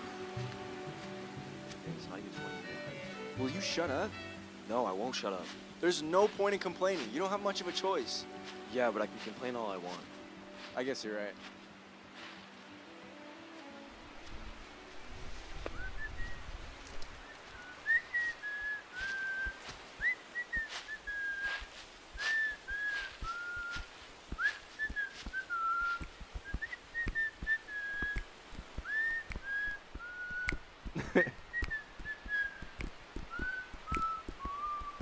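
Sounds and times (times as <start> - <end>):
footsteps through dry grass: 0.0 - 3.6, 5.0 - 26.7
person whistling a tune: 15.7 - 16.4, 17.3 - 35.0.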